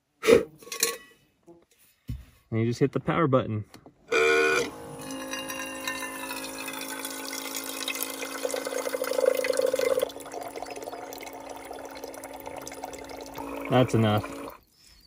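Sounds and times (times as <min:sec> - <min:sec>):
water pump humming: 0:04.1 - 0:14.6
water splashing into metal pot: 0:05.2 - 0:14.4.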